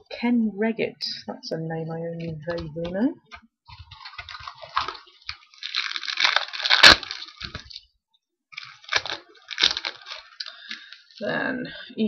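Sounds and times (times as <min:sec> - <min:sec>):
wrappers and cards crackling: 0:03.7 - 0:07.8, 0:08.5 - 0:11.2.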